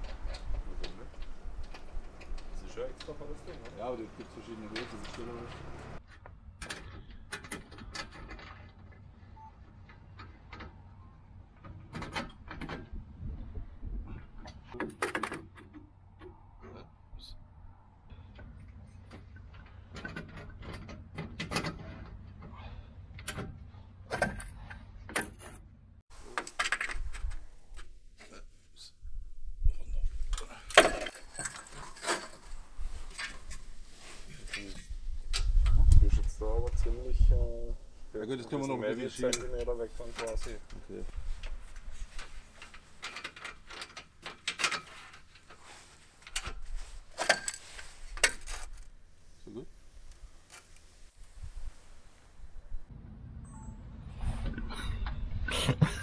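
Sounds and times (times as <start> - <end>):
metal frame clicks and scrapes: 0.0 - 9.1, 30.3 - 35.8, 39.2 - 48.9
metal rattle: 30.4 - 33.6.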